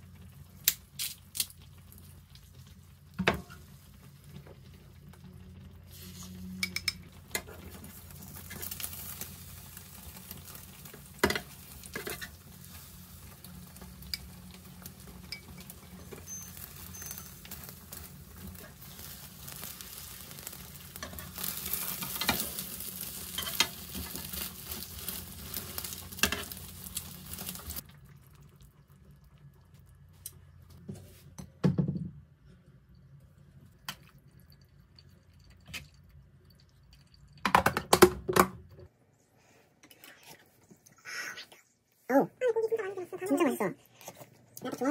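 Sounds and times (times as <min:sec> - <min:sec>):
egg sizzling in a frying pan: 0:00.0 - 0:30.7.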